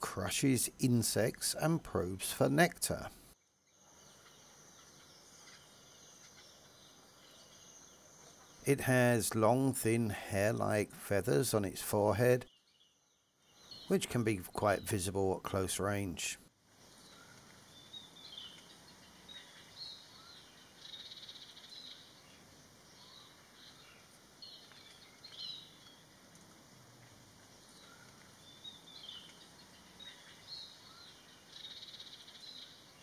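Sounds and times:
background hiss: 0.0s - 33.0s
bird chirps: 3.6s - 9.6s, 12.4s - 16.2s, 16.8s - 26.5s, 27.4s - 33.0s.

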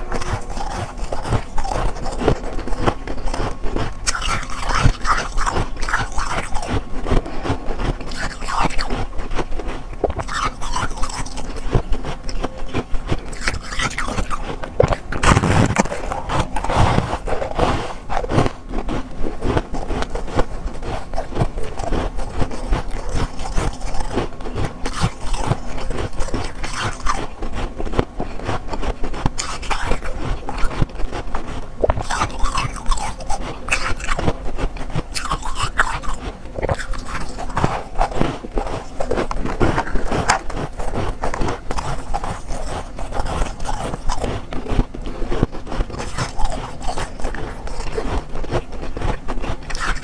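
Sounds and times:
frost crunching and squeaking: 0.0s - 50.0s.

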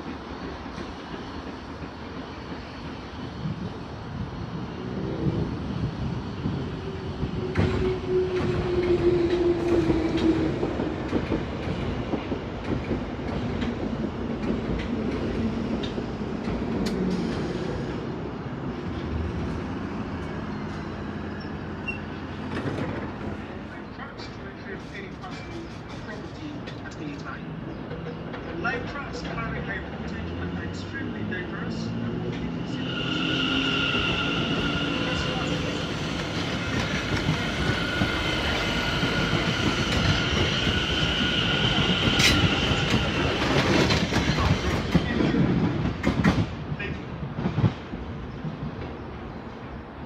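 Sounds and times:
falling whine of train: 0.0s - 50.0s
train braking to a stop: 20.5s - 22.2s, 30.2s - 44.7s.

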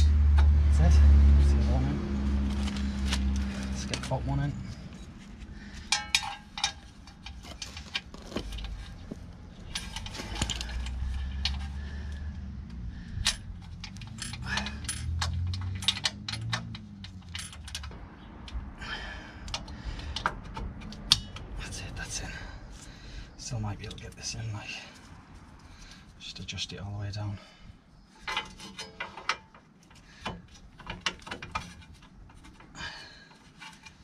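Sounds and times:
metallic clicks and clinks: 5.8s - 9.0s, 13.2s - 18.6s.

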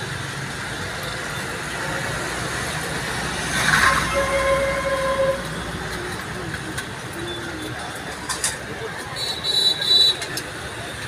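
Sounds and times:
roadside traffic noise: 0.0s - 11.0s
vehicle horn steady tone: 3.8s - 5.5s.

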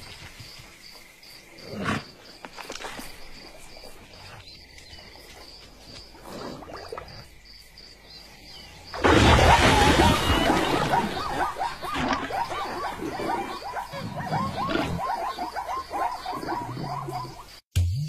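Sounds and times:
insects chirping: 0.0s - 17.7s
repeated animal calls: 8.9s - 17.6s.

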